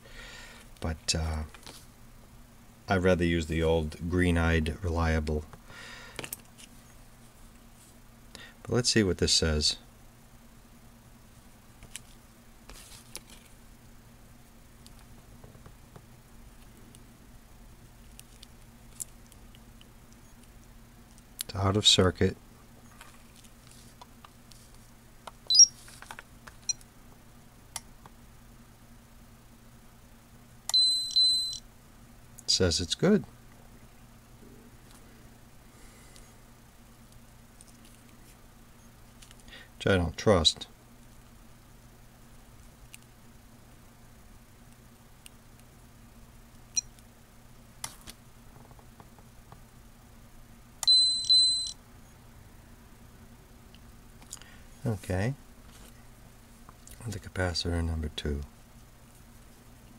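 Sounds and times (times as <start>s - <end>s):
high steady meter beep: 25.5s - 25.7s, 30.7s - 31.6s, 50.8s - 51.8s
short rising electronic chirp: 25.5s - 25.7s.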